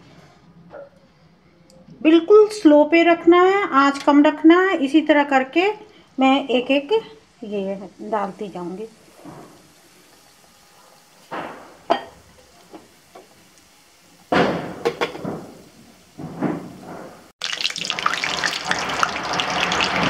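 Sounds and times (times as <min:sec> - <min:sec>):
deep-frying crackling sizzle: 0:04.4 - 0:20.0.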